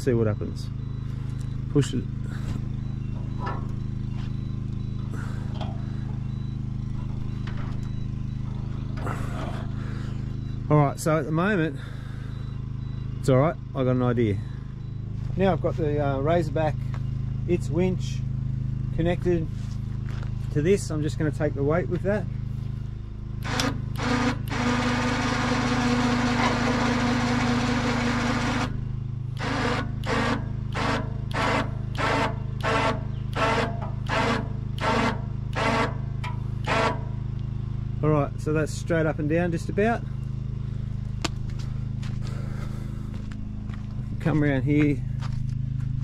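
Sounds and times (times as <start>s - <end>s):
electric winch motor whining: 0.0s - 13.2s, 22.5s - 37.5s
steady low hum: 0.0s - 46.0s
truck engine idling: 0.0s - 46.0s.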